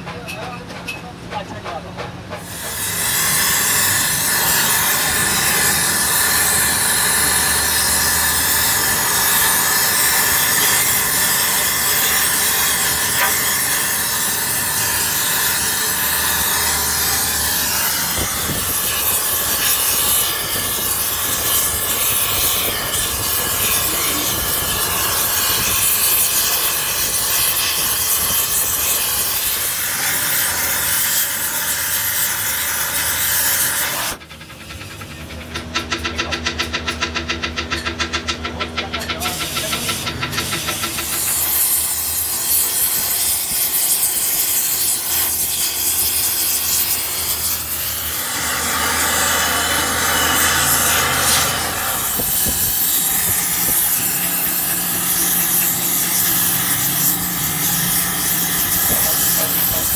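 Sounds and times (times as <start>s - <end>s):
gas torch flame hissing: 2.4s - 34.2s, 39.3s - 59.9s.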